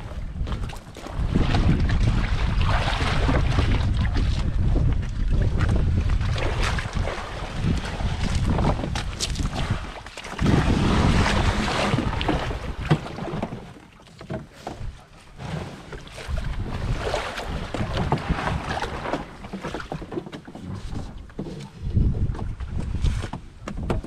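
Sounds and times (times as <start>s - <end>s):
wind buffeting microphone: 0.0s - 13.7s, 14.6s - 20.0s, 20.6s - 24.0s
knocks and scrapes: 7.6s - 24.0s.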